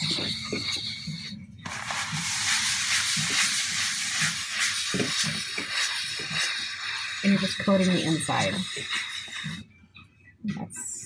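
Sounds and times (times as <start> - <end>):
oil sizzling in a wok: 1.8 - 7.4.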